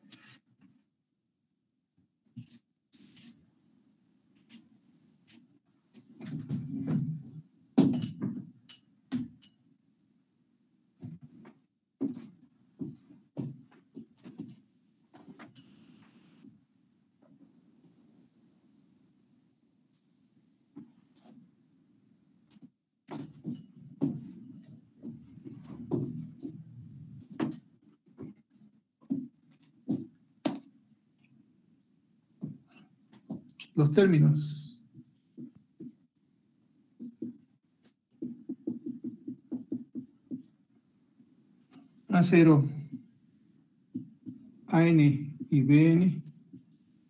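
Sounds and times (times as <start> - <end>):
eraser rubbing on whiteboard: 2.4 - 3.4
knocks taps and handling noises: 29.0 - 30.7, 37.0 - 40.6, 43.9 - 44.5.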